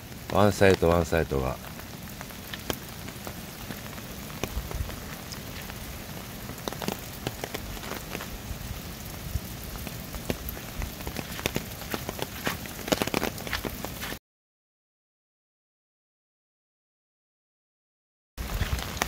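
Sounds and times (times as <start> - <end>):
steady rain hiss: 0.0 - 14.2, 18.4 - 19.0.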